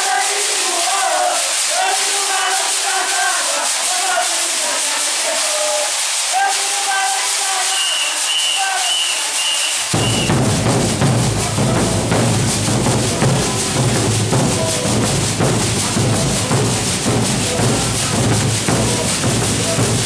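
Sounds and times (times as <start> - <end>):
bass drums beaten with sticks: 9.9 - 20.0.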